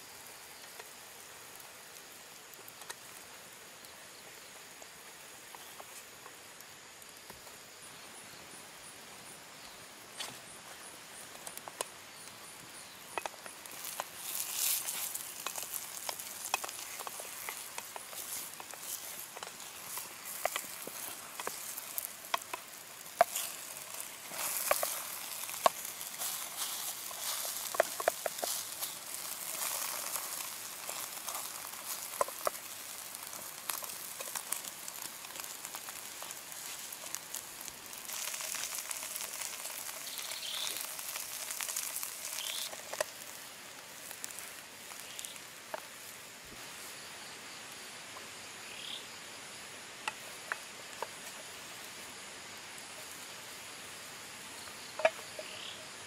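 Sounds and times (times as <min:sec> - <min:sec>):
omelette sizzling in oil: 0:00.0 - 0:55.8
wooden spatula scraping a pan: 0:13.6 - 0:43.2.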